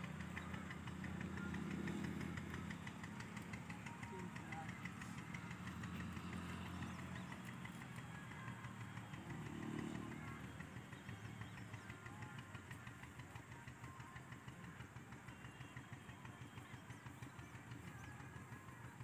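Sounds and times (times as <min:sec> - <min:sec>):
faint vehicle engine running: 0:00.0 - 0:19.0.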